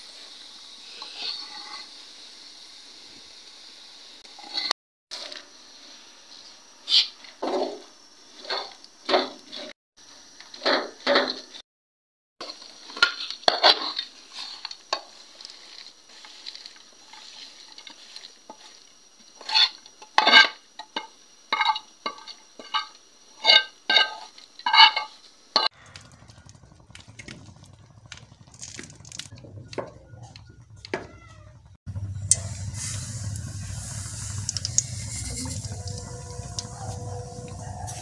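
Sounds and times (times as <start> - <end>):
metal spoon scraping a pan: 1.0 - 2.0, 12.4 - 20.6, 21.5 - 25.8
faint crackles: 25.8 - 38.0
low hum: 25.8 - 38.0.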